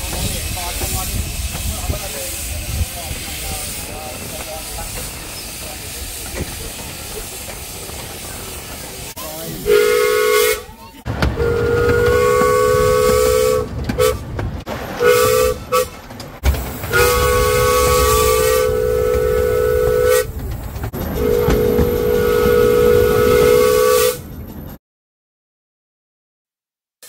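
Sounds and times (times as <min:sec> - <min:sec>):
moving train rumble: 0:00.0 - 0:24.8
steam locomotive two-note whistle: 0:09.6 - 0:10.6, 0:11.4 - 0:14.2, 0:15.0 - 0:15.9, 0:16.9 - 0:20.3, 0:21.2 - 0:24.2.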